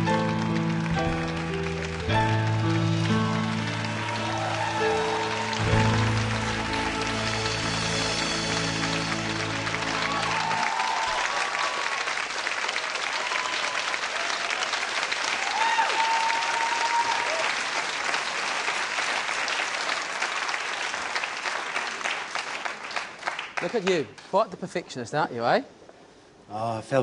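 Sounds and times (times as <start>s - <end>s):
waltz music: 0.0s - 10.6s
audience applauding and cheering: 0.0s - 24.3s.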